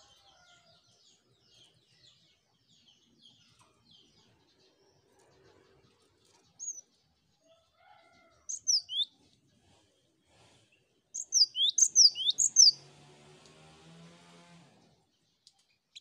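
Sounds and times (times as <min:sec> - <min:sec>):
bird whistling song: 0:06.6 - 0:06.8, 0:08.5 - 0:09.1, 0:11.2 - 0:12.8.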